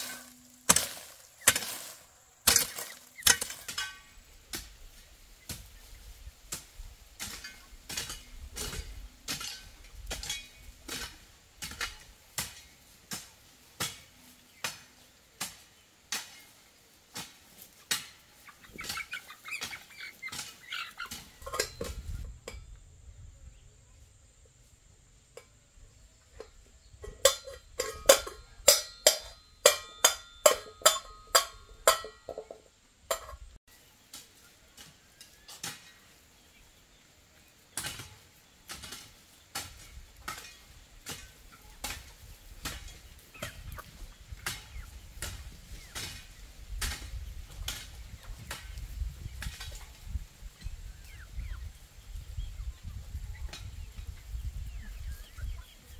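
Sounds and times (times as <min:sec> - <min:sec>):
hand tool strikes ringing: 0:27.3 - 0:32.3.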